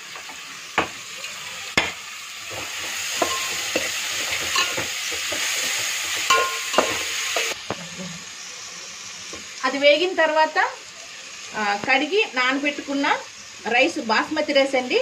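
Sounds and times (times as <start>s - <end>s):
vegetables sizzling in oil: 0.0s - 15.0s
metal spoon clinking on pot: 6.3s - 7.0s.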